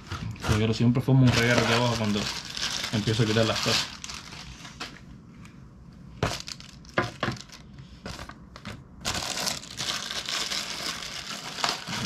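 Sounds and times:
plastic bag crinkling: 0.0 - 5.0, 6.2 - 12.0.

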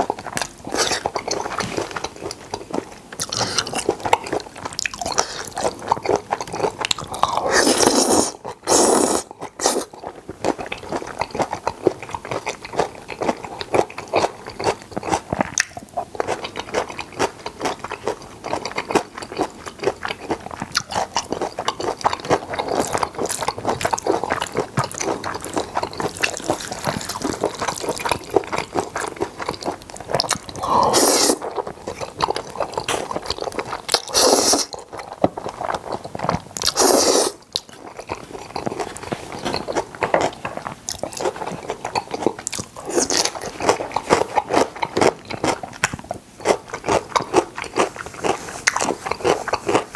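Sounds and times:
wet chewing with mouth clicks: 0.0 - 49.9
noodle slurps: 7.4 - 9.9, 30.5 - 31.4, 34.0 - 34.8, 36.6 - 37.4.

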